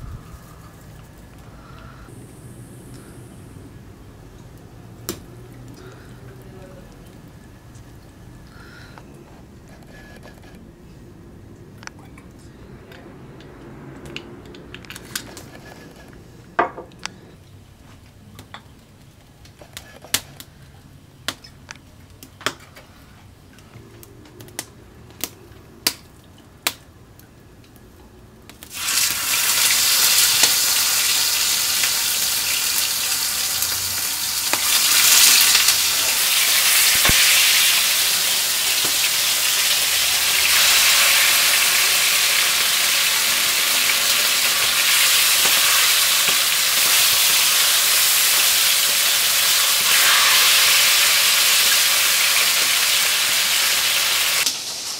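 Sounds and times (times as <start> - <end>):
meat sizzling in hot oil: 28.6 - 54.9.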